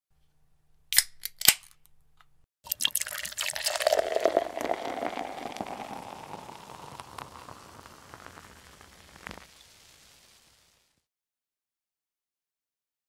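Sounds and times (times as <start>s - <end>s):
beer fizzing: 2.6s - 10.9s.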